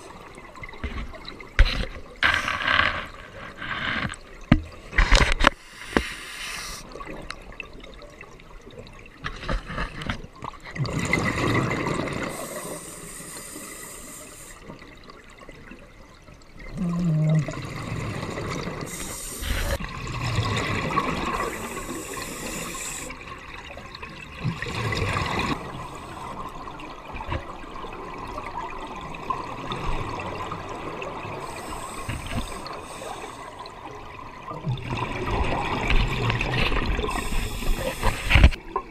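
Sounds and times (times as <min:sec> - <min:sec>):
rushing water noise: 0:24.6 - 0:38.9.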